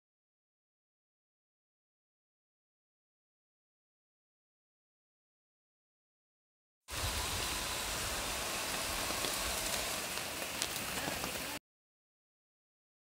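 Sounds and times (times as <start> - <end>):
rain falling on leaves: 6.9 - 11.6.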